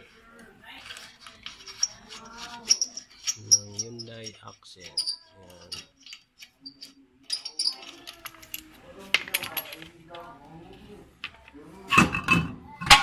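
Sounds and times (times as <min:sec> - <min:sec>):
metal tools clinking on metal: 0:00.8 - 0:09.9.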